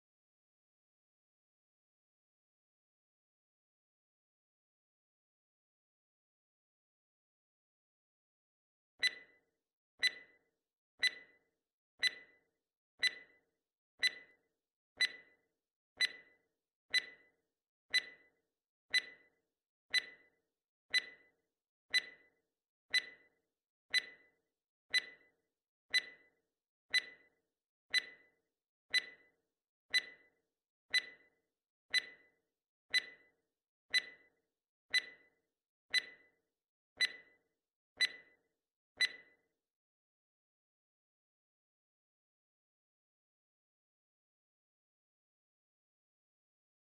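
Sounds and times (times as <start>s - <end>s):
timer ticking: 9.0s - 9.3s, 10.0s - 10.3s, 11.0s - 11.4s, 12.0s - 12.4s, 13.0s - 13.4s, 14.0s - 14.4s, 15.0s - 15.3s, 16.0s - 17.3s, 17.9s - 18.3s, 18.9s - 19.3s, 19.9s - 20.3s, 20.9s - 21.3s, 21.9s - 22.3s, 22.9s - 23.3s, 23.9s - 24.3s, 24.9s - 25.3s, 25.9s - 26.3s, 26.9s - 27.3s, 27.9s - 28.3s, 28.9s - 29.3s, 29.9s - 30.3s, 30.9s - 31.3s, 31.9s - 32.3s, 32.9s - 33.3s, 33.9s - 34.3s, 34.9s - 35.3s, 35.9s - 36.3s, 37.0s - 37.4s, 38.0s - 38.3s, 39.0s - 39.3s.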